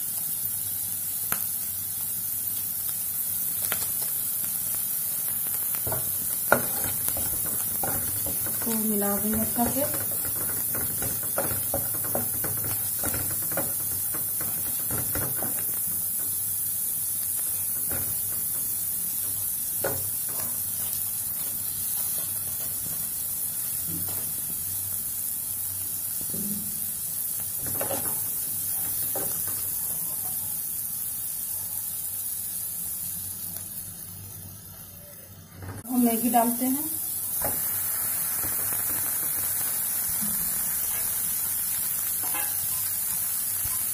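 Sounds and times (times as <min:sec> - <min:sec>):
vegetables sizzling in oil: 0:00.0 - 0:43.9
spatula scraping a pan: 0:05.8 - 0:16.2, 0:27.6 - 0:29.7, 0:42.2 - 0:42.8.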